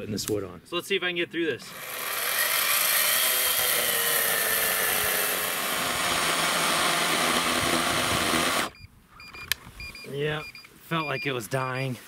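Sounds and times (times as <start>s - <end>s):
electric chainsaw cutting log: 1.7s - 8.8s.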